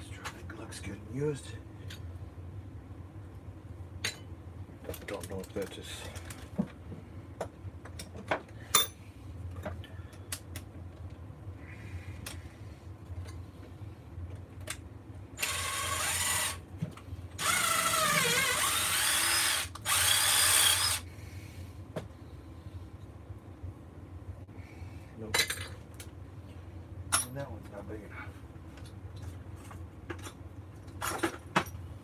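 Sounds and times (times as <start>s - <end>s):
cordless drill motor whine: 15.4s - 16.6s, 17.4s - 21.0s.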